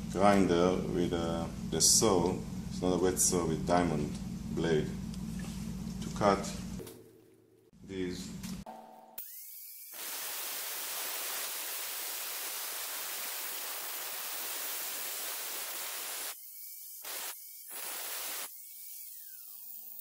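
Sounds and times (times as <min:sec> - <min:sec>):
angle grinder whine: 0:09.2 - 0:20.0
grinder cutting tile: 0:09.2 - 0:20.0.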